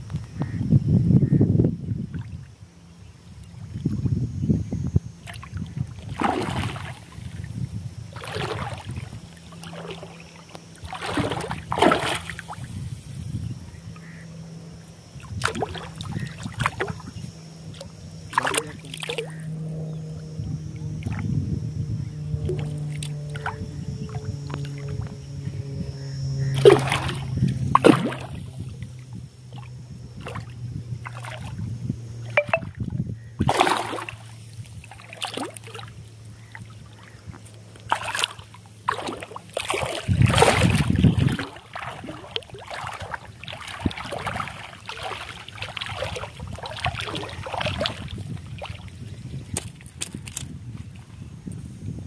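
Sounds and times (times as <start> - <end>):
fish thrashing and splashing: 5.3 - 7.4, 8.2 - 10.2, 10.8 - 12.6, 15.3 - 17.0, 17.7 - 19.4, 26.6 - 28.4, 33.4 - 35.9, 37.8 - 50.4.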